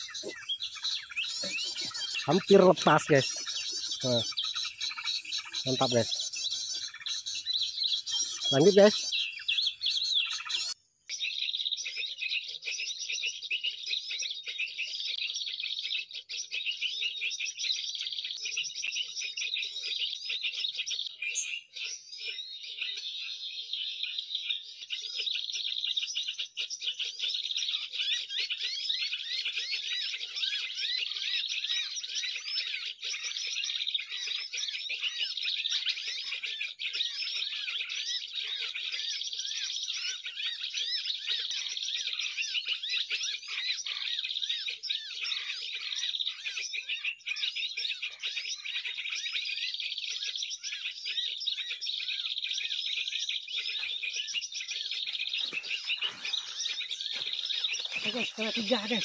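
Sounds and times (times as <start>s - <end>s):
songbirds chirping: 0.0s - 59.0s.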